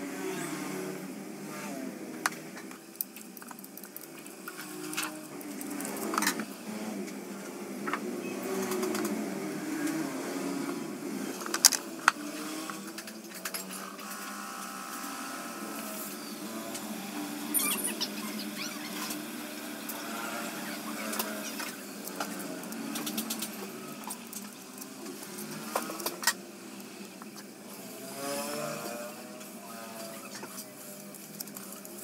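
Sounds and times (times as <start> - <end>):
wire scraping and clicking: 2.3 - 6.5, 19.0 - 27.5, 28.2 - 32.0.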